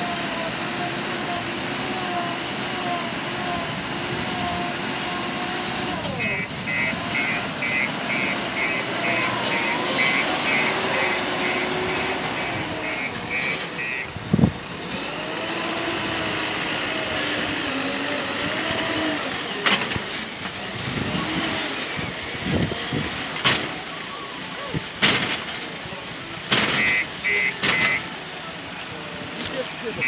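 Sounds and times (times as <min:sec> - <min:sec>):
diesel engine running: 0:00.0 - 0:30.0
reversing alarm beeping: 0:06.2 - 0:14.1, 0:26.8 - 0:28.1
sharp knocks: 0:26.5 - 0:27.0.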